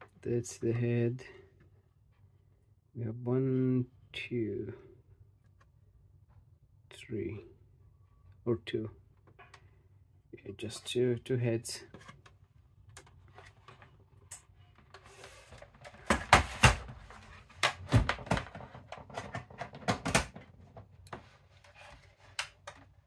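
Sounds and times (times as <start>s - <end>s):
clicks and knocks on plastic case: 17.6s - 21.3s.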